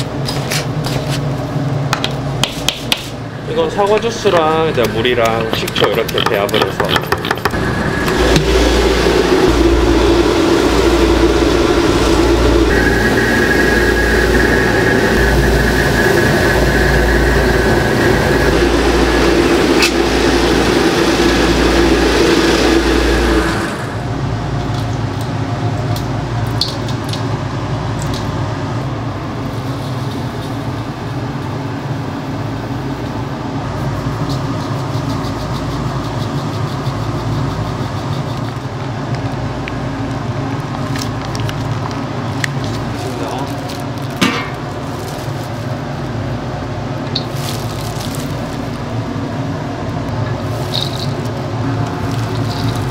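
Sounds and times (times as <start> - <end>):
kitchen machinery drone: 0.0 - 52.9
steady tones: 7.4 - 24.4.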